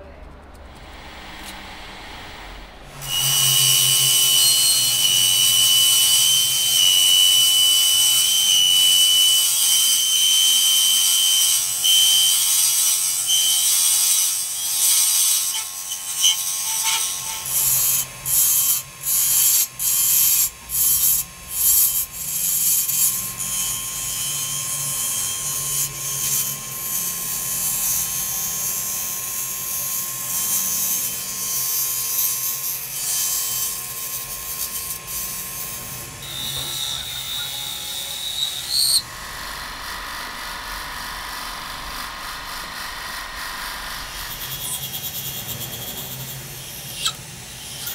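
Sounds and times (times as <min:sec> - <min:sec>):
lathe motor whine: 0:32.6 - 0:47.9.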